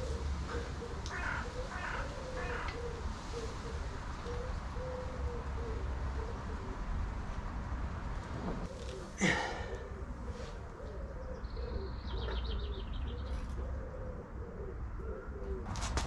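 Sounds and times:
pigeon cooing: 0.0s - 7.1s, 8.6s - 16.0s
wind rumbling on microphone: 5.4s - 8.8s.

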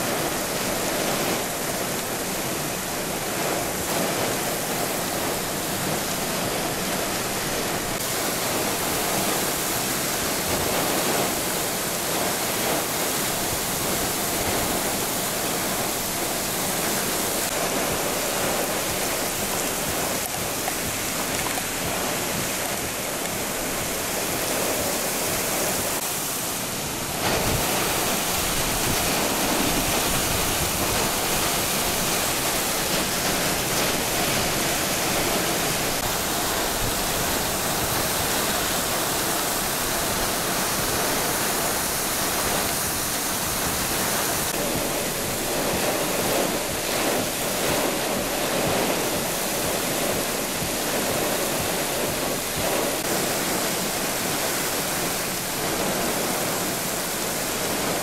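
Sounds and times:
heavy rain on pavement: 0.0s - 58.0s
high winds: 0.0s - 58.0s.

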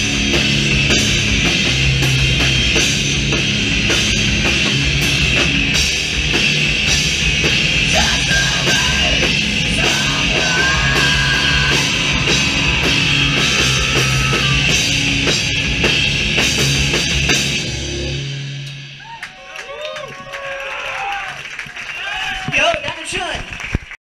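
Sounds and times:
heavy metal band playing live: 0.0s - 19.1s.

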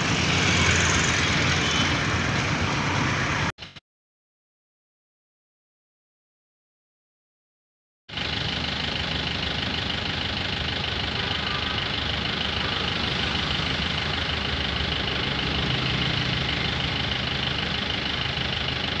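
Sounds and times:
engine idling with rapid knock: 8.1s - 19.0s.

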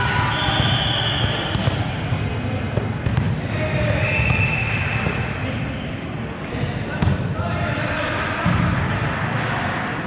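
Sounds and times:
hubbub of voices: 0.0s - 10.0s.

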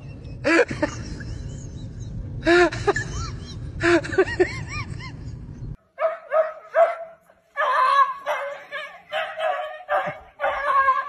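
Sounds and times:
steady low rumble: 0.0s - 5.8s.

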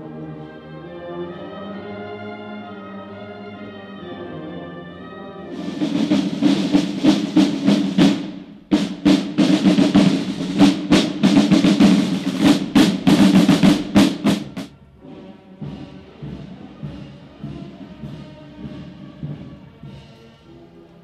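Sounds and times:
marching field drums: 5.5s - 20.4s.

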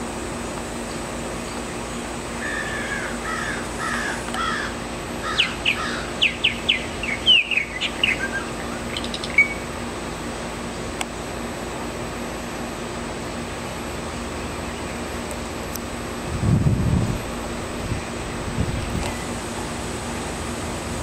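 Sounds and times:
low background hum: 0.0s - 21.0s
bird singing gurgling warbles: 5.3s - 9.6s.

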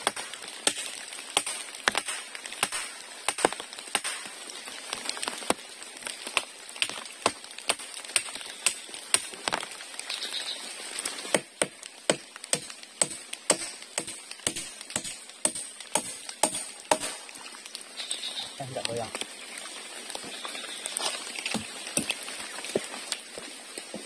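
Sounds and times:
machete chopping wood: 0.0s - 4.3s, 11.3s - 17.3s.

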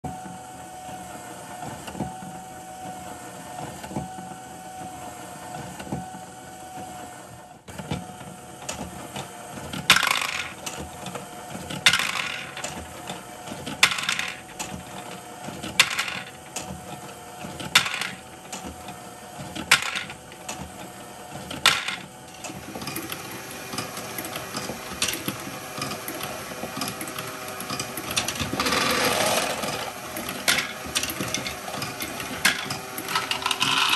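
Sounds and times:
motor and gears whirring: 0.1s - 33.9s
plastic balls clattering: 9.9s - 10.6s, 11.8s - 12.7s, 13.8s - 14.4s, 15.8s - 16.3s, 17.7s - 18.2s, 19.6s - 20.2s, 21.6s - 22.0s, 27.7s - 33.9s.

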